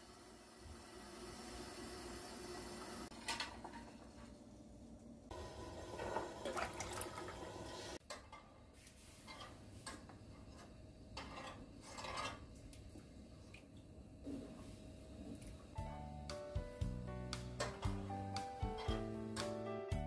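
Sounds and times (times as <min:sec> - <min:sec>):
liquid sounds: 0:06.0 - 0:07.8.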